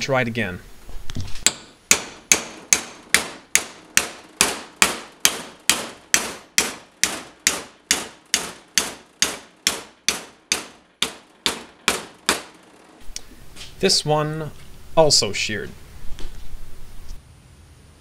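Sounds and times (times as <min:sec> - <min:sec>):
sledge hammer striking steel pin: 0:01.4 - 0:12.6.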